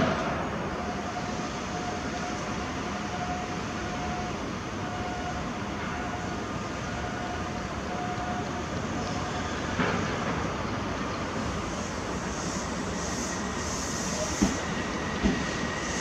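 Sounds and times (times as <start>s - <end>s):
high hiss of wheels on rail: 0.0s - 4.6s, 8.6s - 16.0s
electric train rumbling: 0.0s - 16.0s.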